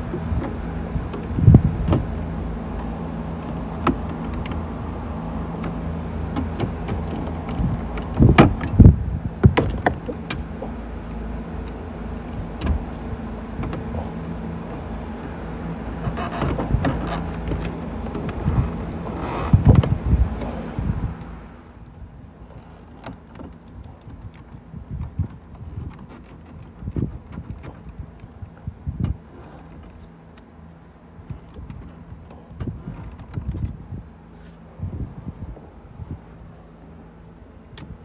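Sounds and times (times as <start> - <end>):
low hum inside car: 0.0 - 38.0.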